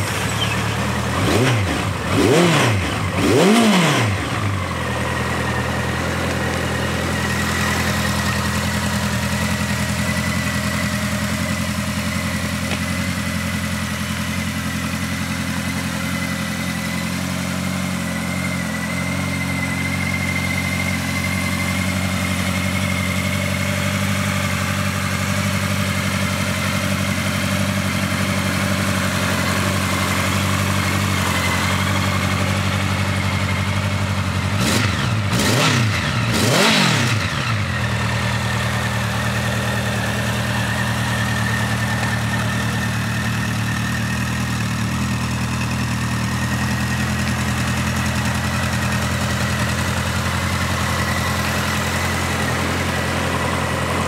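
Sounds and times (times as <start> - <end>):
motorcycle engine idling: 0.0 - 54.0
motorcycle throttle blips: 0.1 - 13.5.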